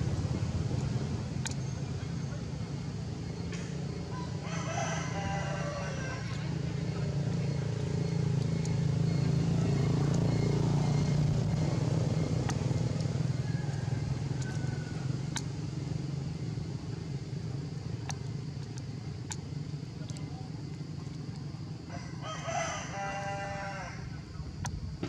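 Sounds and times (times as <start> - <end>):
low engine hum: 0.0 - 25.0
faint sharp ticks: 1.4 - 1.7, 8.4 - 8.8, 12.4 - 14.7, 15.3 - 15.6, 18.0 - 21.5.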